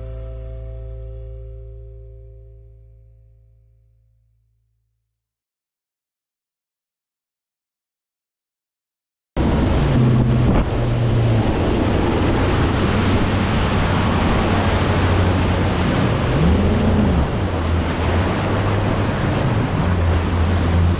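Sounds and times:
outboard motor running: 0:09.4 - 0:20.9
water rushing past hull: 0:09.4 - 0:20.9
wind buffeting microphone: 0:09.4 - 0:20.9.

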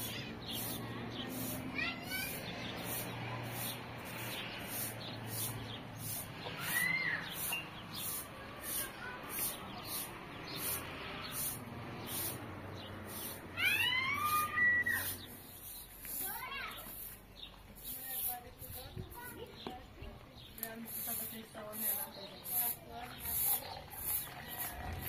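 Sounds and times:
steady background noise: 0:00.0 - 0:25.0
animal cries: 0:13.2 - 0:15.2.

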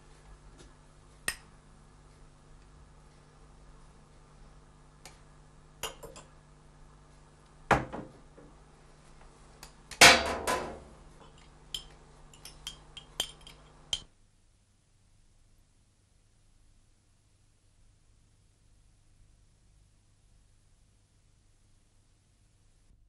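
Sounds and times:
spoon clinking against ceramic cup: 0:11.2 - 0:14.1.

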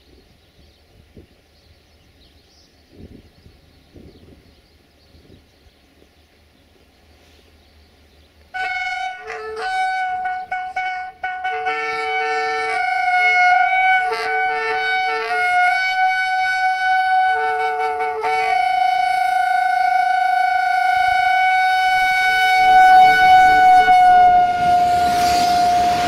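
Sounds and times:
locomotive air horn blasts: 0:08.5 - 0:26.0.

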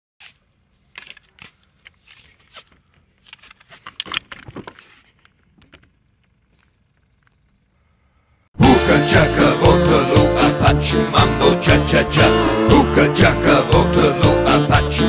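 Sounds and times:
clicks rustles and scrapes: 0:00.2 - 0:07.5.

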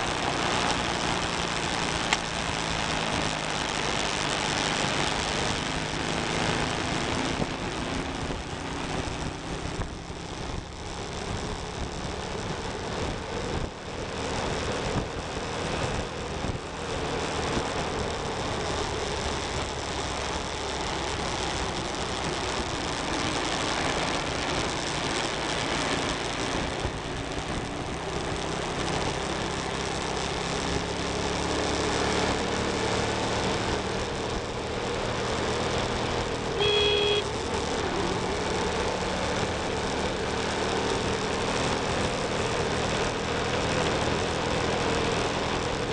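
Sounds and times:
motorcycle engine running: 0:00.0 - 0:45.9
wind and road noise: 0:00.0 - 0:45.9
horn honking: 0:36.6 - 0:37.3.

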